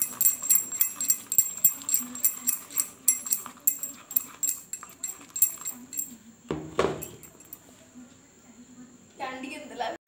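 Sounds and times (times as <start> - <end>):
spatula beating cream in glass bowl: 0.0 - 6.2.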